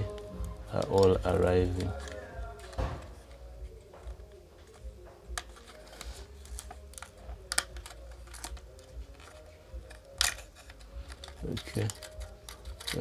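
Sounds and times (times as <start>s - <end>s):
plastic speaker clicks and taps: 6.6s - 8.7s.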